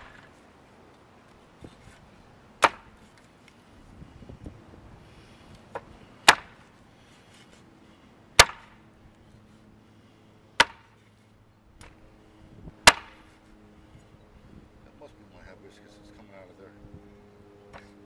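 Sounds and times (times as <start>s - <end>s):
machete chopping into wood: 2.6s - 3.0s, 5.7s - 6.6s, 8.4s - 8.8s, 10.6s - 11.0s, 12.8s - 13.2s.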